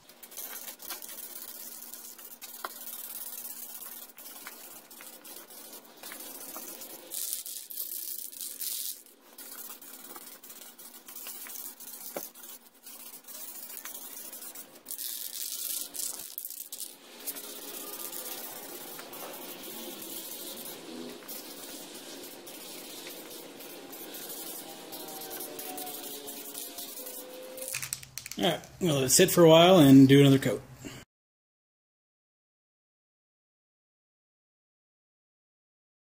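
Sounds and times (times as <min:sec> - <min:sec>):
spray paint can hissing: 0:00.0 - 0:28.4.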